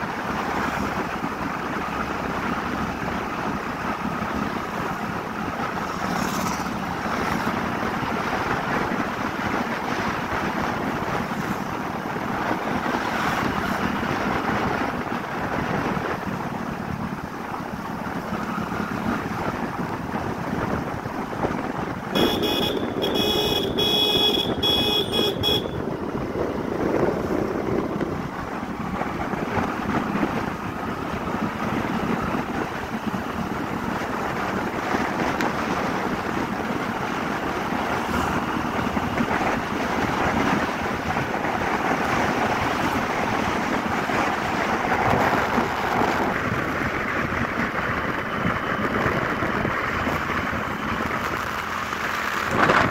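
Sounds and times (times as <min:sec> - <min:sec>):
motorbike engine and road noise: 0:00.0 - 0:52.9
wind rushing over microphone: 0:00.0 - 0:52.9
horn pulses: 0:22.2 - 0:25.8.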